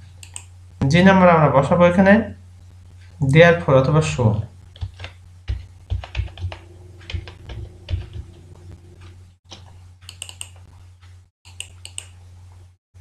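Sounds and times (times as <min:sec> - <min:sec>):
low electrical hum: 0:00.0 - 0:13.0
keyboard typing clicks: 0:00.2 - 0:00.5, 0:10.0 - 0:10.6, 0:11.5 - 0:12.2.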